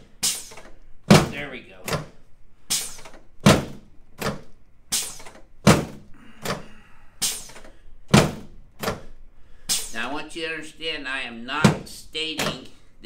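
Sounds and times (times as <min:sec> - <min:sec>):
table section thudding down: 0:01.1 - 0:02.1, 0:02.8 - 0:04.4, 0:05.6 - 0:06.6, 0:08.1 - 0:09.0.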